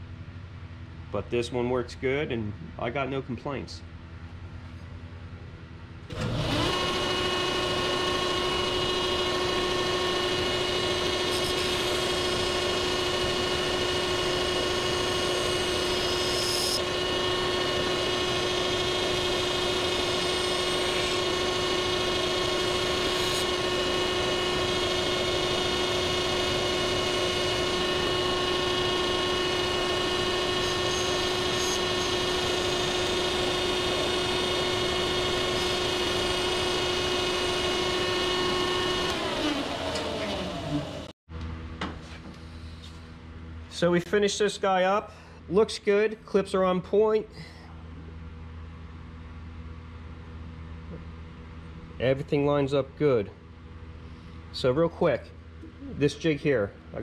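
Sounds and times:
belt grinder whine: 6.1s - 41.2s.

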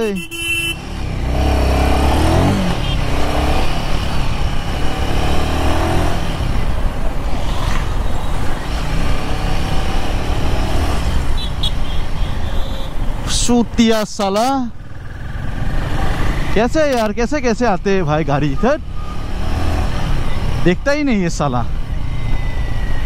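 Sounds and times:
wind and road noise: 0.0s - 23.0s
motorcycle engine revving: 0.6s - 11.4s, 14.8s - 16.7s, 18.8s - 20.6s.

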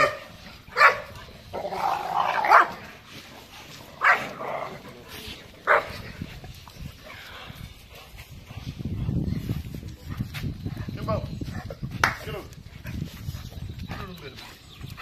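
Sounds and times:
dog barking: 0.0s - 1.1s, 2.5s - 2.8s, 4.0s - 4.3s, 5.7s - 5.9s.

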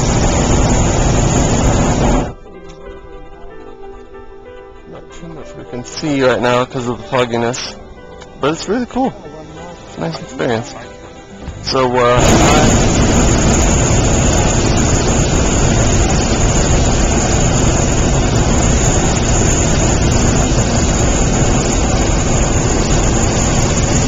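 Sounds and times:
propane burner roaring: 0.0s - 2.4s, 11.7s - 24.0s.

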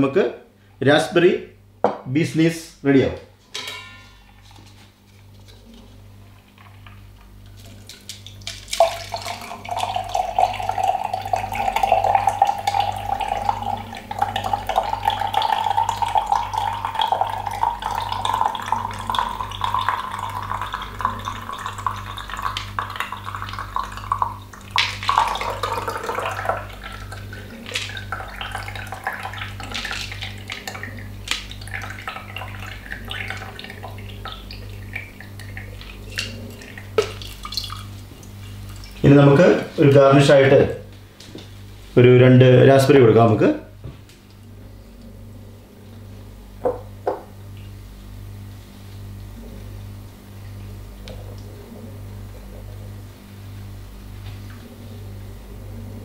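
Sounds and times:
liquid dripping: 6.5s - 39.6s
drink trickling into glass: 7.6s - 37.9s.

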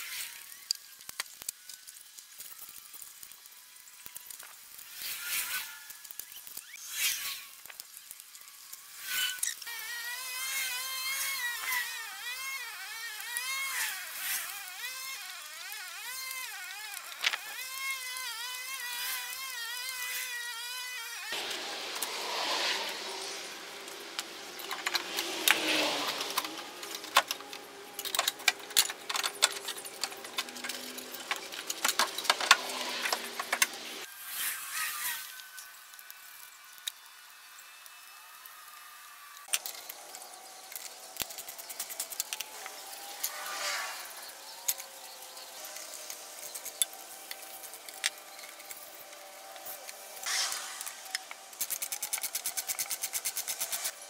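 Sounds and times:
scraping rustle: 40.8s - 54.0s.

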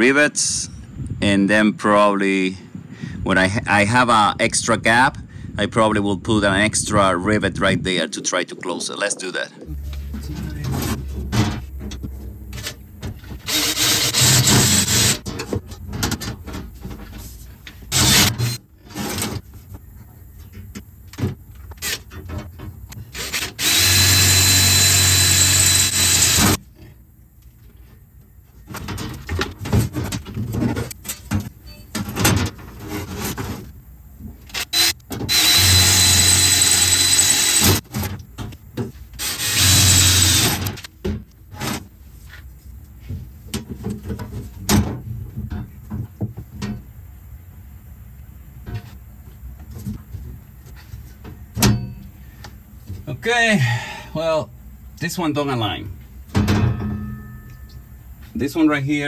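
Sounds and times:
power drill drilling steel sheet: 13.4s - 15.2s, 17.9s - 18.6s, 23.2s - 26.6s, 34.7s - 37.8s, 39.2s - 40.7s.

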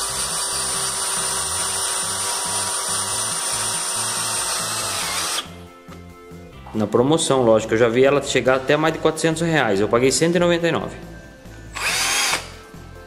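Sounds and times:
drill grinding against steel: 0.0s - 5.5s, 11.7s - 12.6s
background music with beat: 4.6s - 13.0s.

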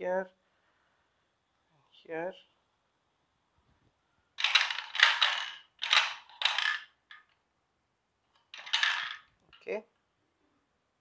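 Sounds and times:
plastic pieces clattering: 4.4s - 7.4s, 8.4s - 9.4s.

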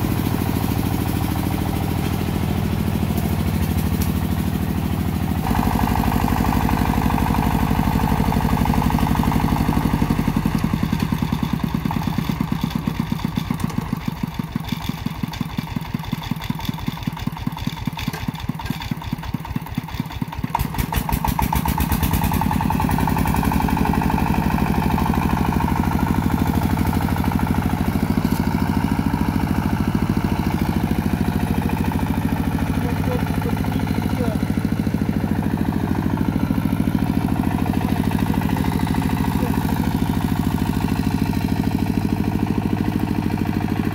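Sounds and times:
diesel engine chugging: 0.0s - 43.9s.

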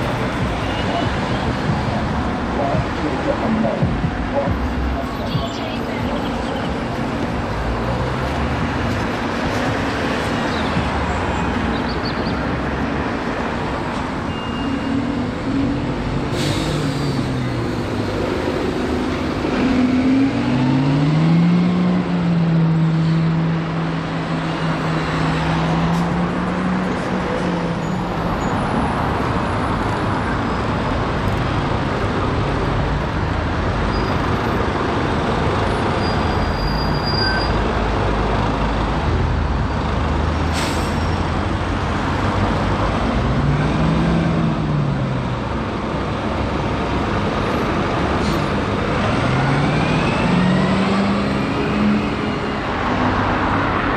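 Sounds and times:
street traffic: 0.0s - 53.9s
diesel bus pulling away: 14.2s - 53.9s
air brake hiss: 16.3s - 17.4s, 40.5s - 41.2s.

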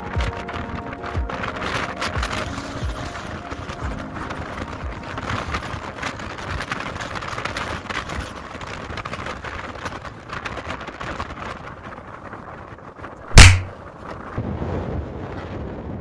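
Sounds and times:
wind buffeting microphone: 0.0s - 16.0s
loud sudden bang: 13.4s - 13.7s.

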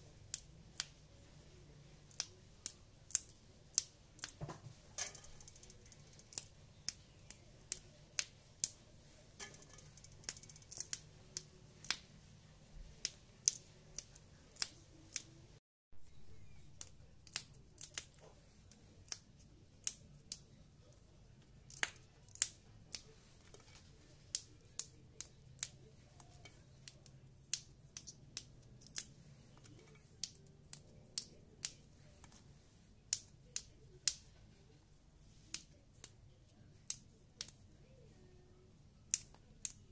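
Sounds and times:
green beans snapping: 2.0s - 8.8s, 9.4s - 12.1s, 13.0s - 15.4s, 16.7s - 20.5s, 21.7s - 32.4s, 33.1s - 34.3s, 39.1s - 39.9s.

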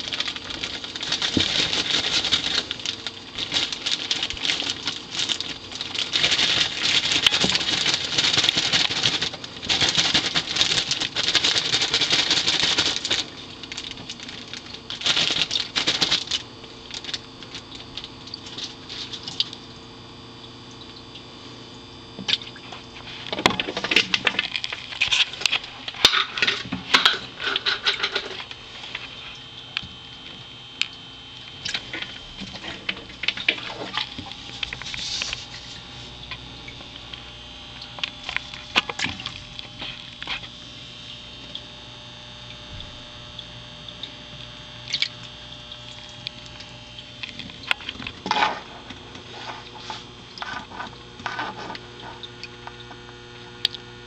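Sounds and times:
crickets and toads rustling on soil: 0.0s - 19.7s, 31.4s - 42.0s, 44.1s - 53.3s
steady electrical hum: 0.0s - 54.0s.

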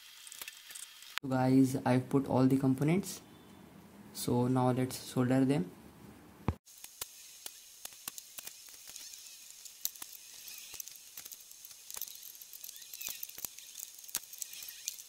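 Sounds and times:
flux crackling and clicking: 0.0s - 1.2s, 6.6s - 15.0s
soldering iron hissing: 6.7s - 15.0s.

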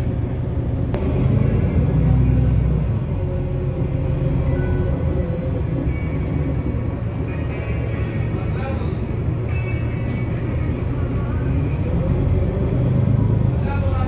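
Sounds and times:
bus cabin rumble: 0.0s - 14.0s.

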